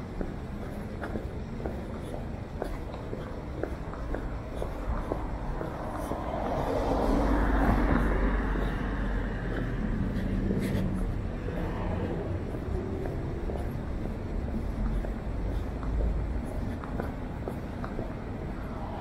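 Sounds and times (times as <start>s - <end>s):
low rumble of city traffic: 0.0s - 19.0s
car passing: 4.3s - 15.5s.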